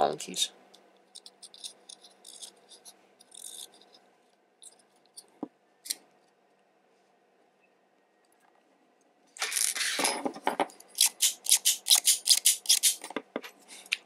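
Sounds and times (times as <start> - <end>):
small metal ticks and scrapes: 0.7 - 4.0.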